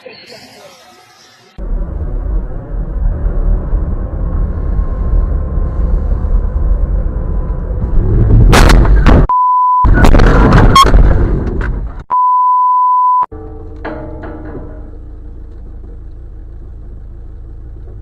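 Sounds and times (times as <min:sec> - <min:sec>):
vehicle driving rumble: 0:01.5 - 0:09.3, 0:13.3 - 0:18.0
very loud sudden noise: 0:07.9 - 0:09.3
censor bleep: 0:09.3 - 0:10.0, 0:12.1 - 0:13.3.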